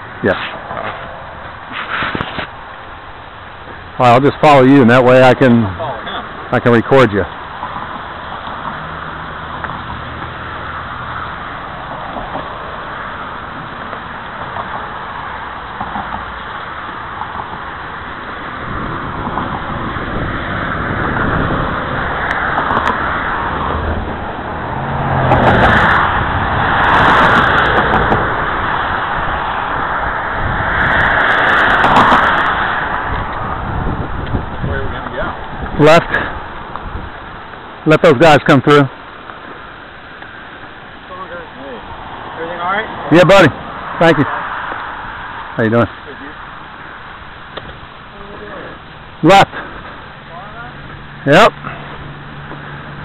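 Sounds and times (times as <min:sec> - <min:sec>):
bike rolling noise: 0:00.0 - 0:53.0
cars passing: 0:00.0 - 0:53.0
wind rushing: 0:17.0 - 0:37.4.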